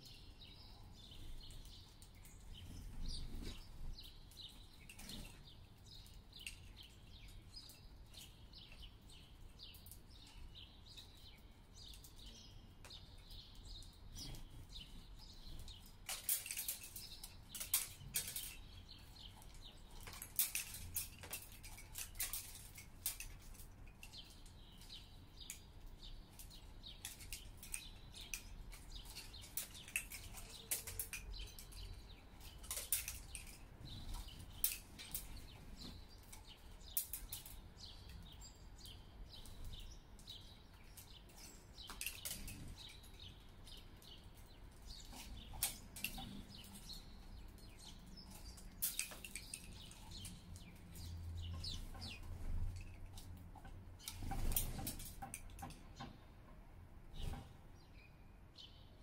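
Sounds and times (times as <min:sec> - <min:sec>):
sparrows chirping: 0:00.0 - 0:59.0
bird wing flutters and clicks: 0:13.6 - 0:38.3, 0:39.3 - 0:43.0, 0:43.7 - 0:47.0, 0:47.6 - 0:56.1.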